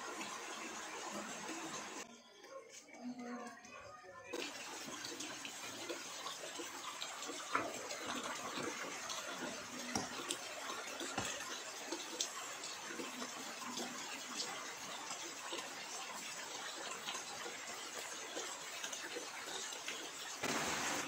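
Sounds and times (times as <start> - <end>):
light rain falling: 4.4 - 21.0.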